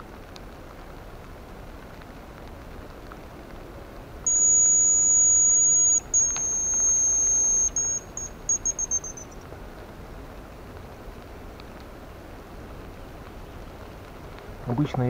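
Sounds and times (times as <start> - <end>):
decoy whistle high notes: 4.3 - 9.4.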